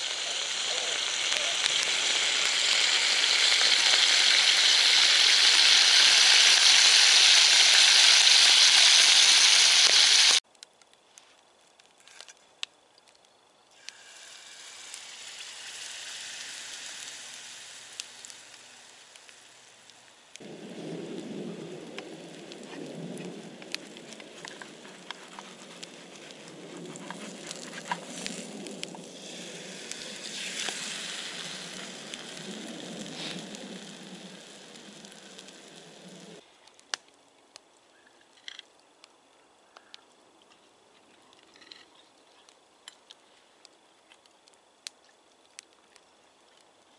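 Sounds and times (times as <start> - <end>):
bacon sizzling in frying pan: 0.0 - 10.4, 13.8 - 36.4
pancake frying sizzle: 0.0 - 10.4, 13.8 - 36.9
wood fire crackling: 0.0 - 40.2, 42.4 - 46.9.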